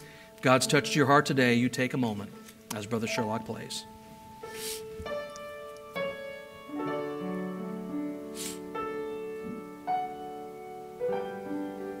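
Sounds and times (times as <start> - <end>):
piano slow chords: 0.0 - 12.0.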